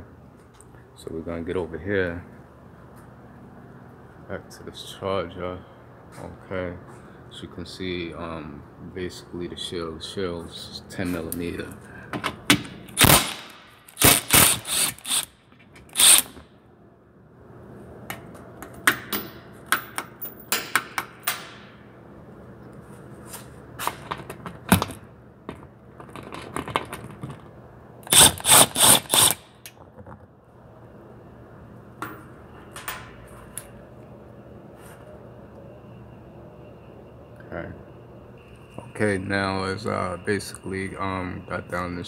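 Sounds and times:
low shop hum: 0:00.0 - 0:42.0
impact tool bursts: 0:13.0 - 0:16.4, 0:28.0 - 0:29.6.

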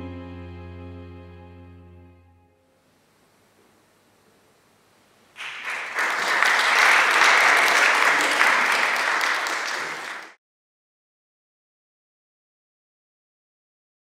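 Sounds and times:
audience applauding: 0:05.4 - 0:10.4.

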